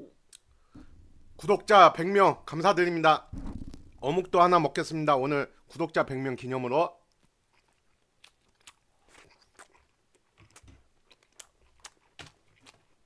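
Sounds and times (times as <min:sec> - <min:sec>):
faint chewing: 0:07.0 - 0:13.0.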